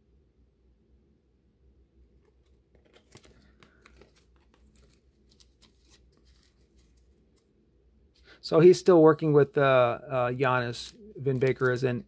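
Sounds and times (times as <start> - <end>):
plastic card sleeves crinkling: 2.1 - 7.6, 10.3 - 12.0.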